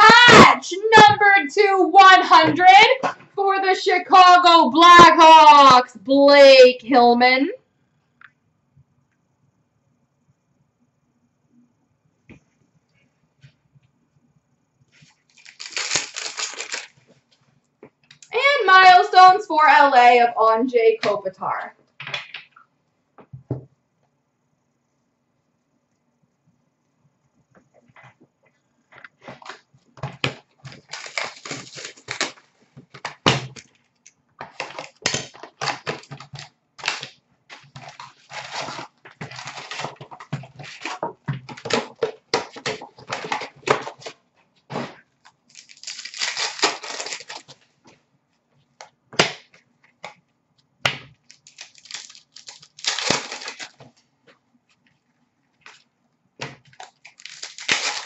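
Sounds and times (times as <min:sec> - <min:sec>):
card pack wrappers tearing: 0:15.3 - 0:17.0, 0:30.3 - 0:32.5, 0:34.4 - 0:47.6, 0:51.2 - 0:54.0, 0:56.7 - 0:58.0.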